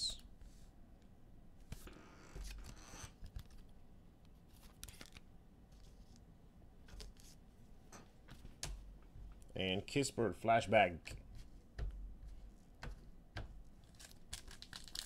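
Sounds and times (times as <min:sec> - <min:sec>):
cards and plastic sleeves rustling: 0:04.5 - 0:06.2, 0:13.7 - 0:15.0.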